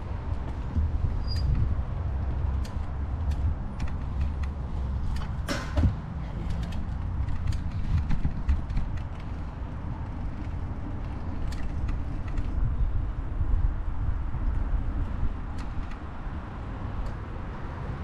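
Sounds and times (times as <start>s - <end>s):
wind rumble on microphone: 0.0s - 18.0s
bicycle frame creaking and clicking: 0.1s - 17.9s
short falling squeak: 1.2s - 1.6s.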